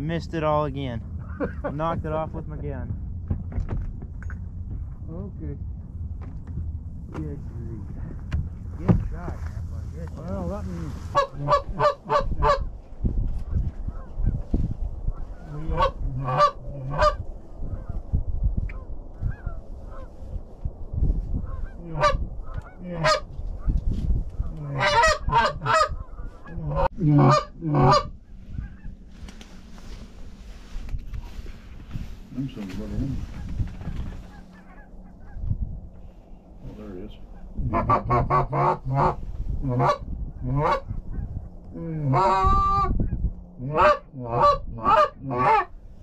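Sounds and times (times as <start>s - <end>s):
goose honking: 11.0s - 12.7s, 15.3s - 17.2s, 21.5s - 23.3s, 24.6s - 28.9s, 33.3s - 35.4s, 37.3s - 41.3s, 42.0s - 42.9s, 43.6s - 45.7s.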